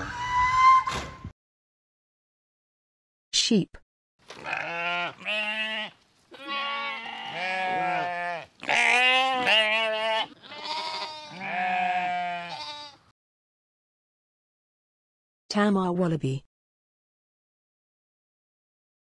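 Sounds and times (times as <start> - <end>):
sheep bleating: 4.4 - 13.0.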